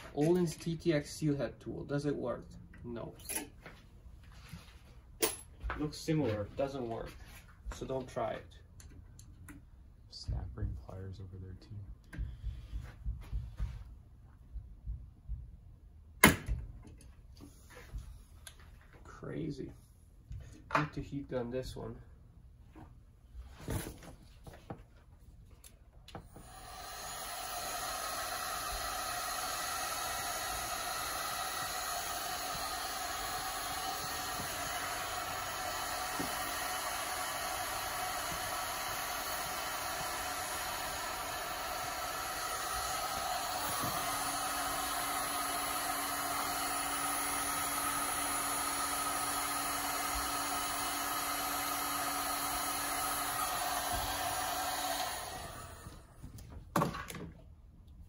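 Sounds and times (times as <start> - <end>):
heat gun blowing: 26.2 - 56.2.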